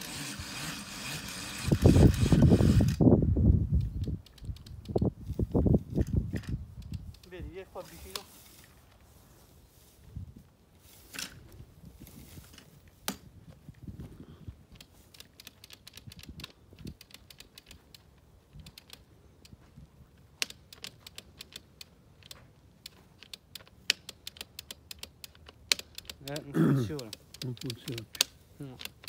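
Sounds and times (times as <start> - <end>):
light clicks and rustles of handle: 3.7 - 9.2, 10.9 - 13.8, 14.7 - 29.0.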